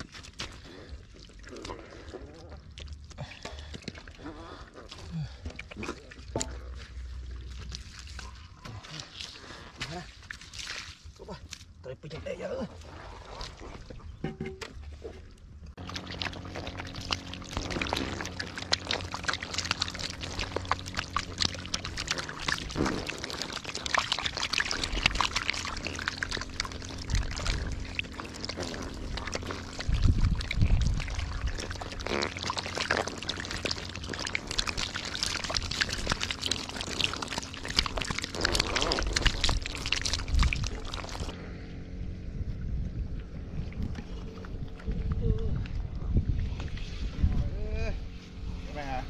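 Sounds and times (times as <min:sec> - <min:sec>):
fish splashing in mud: 0:04.8 - 0:11.7, 0:15.8 - 0:41.4.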